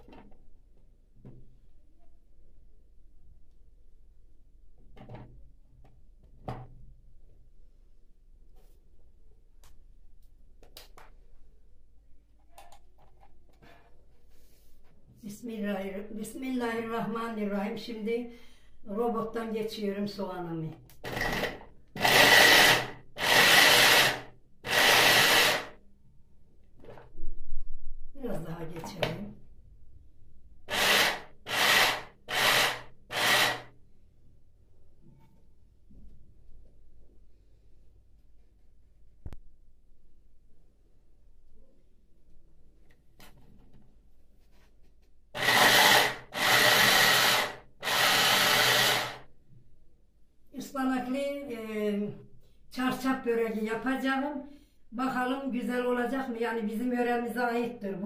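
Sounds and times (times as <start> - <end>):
electric hand blender whining: 21.1 - 25.7, 30.7 - 33.7, 45.4 - 49.2.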